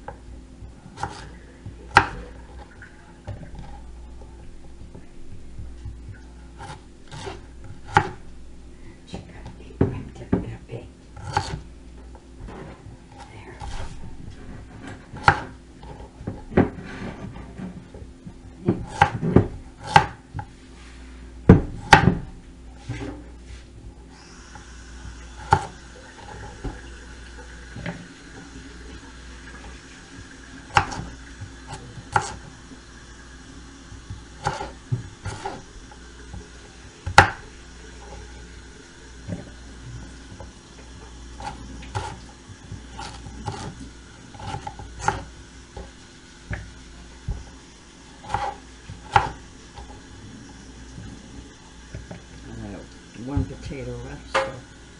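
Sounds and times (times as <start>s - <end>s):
kitchen tap running: 24.1s - 54.9s.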